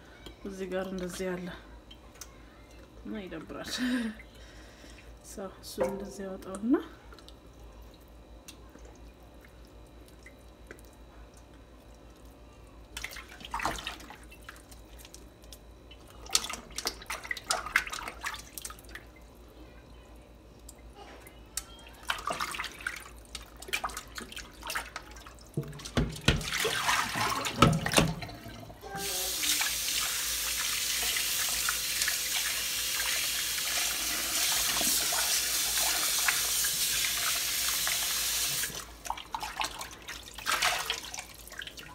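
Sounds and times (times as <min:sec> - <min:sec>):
faucet running into bowl: 0:25.6 - 0:39.9.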